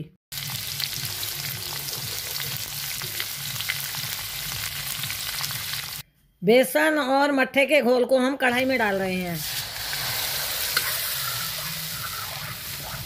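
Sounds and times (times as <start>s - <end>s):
spices sizzling in hot oil: 0.3s - 6.0s, 8.5s - 13.0s.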